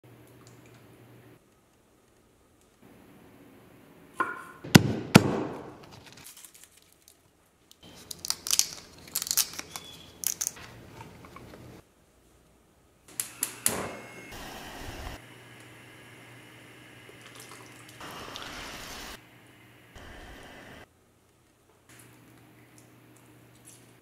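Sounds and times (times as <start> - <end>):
leaves tearing and crinkling: 5.9 - 10.6
leaves cracking: 7.9 - 10.6.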